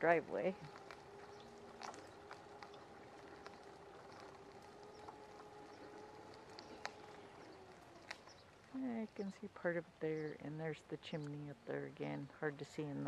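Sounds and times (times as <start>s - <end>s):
light footsteps: 0.0s - 8.8s
faint distant hum: 0.0s - 13.0s.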